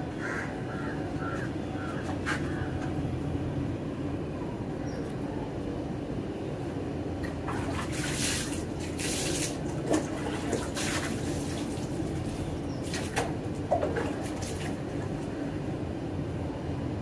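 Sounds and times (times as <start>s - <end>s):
tap water running and splashing: 7.2s - 15.3s.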